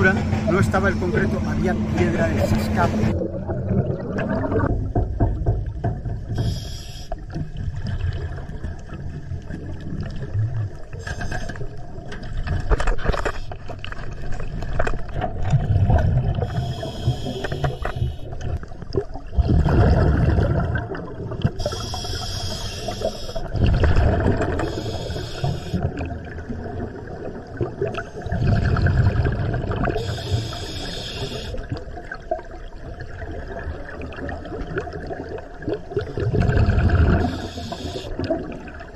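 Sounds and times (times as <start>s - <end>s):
exhaled bubbles rumbling: 0.0s - 22.2s, 22.8s - 30.5s, 31.2s - 38.9s
hissing regulator inhalations: 6.3s - 7.2s, 16.4s - 18.4s, 21.6s - 23.5s, 24.6s - 25.9s, 30.0s - 31.6s, 37.2s - 38.2s.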